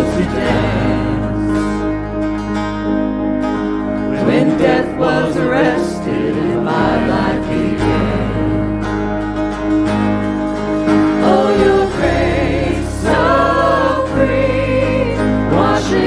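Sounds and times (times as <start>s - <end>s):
voices singing together: 0.0s - 1.8s, 4.1s - 9.1s, 10.9s - 16.0s
acoustic guitar: 0.0s - 16.0s
bass: 0.0s - 16.0s.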